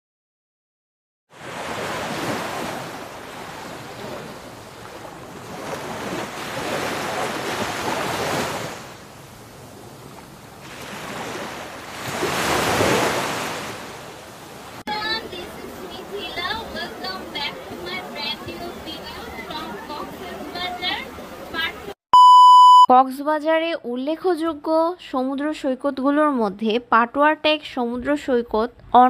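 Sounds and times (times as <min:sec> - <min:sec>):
surf breaking on shore: 0:01.4 - 0:09.0, 0:10.6 - 0:17.2.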